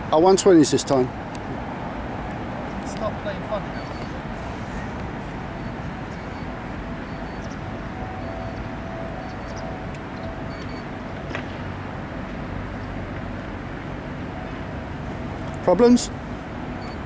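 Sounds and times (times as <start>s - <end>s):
faint steady tone: 3.2s - 11.3s, 16.1s - 17.0s.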